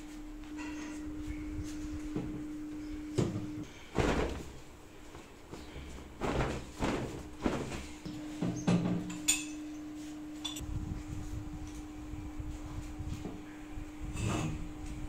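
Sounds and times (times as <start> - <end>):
steady low hum: 0.0 - 15.0
bedsheet flapping: 3.6 - 8.4.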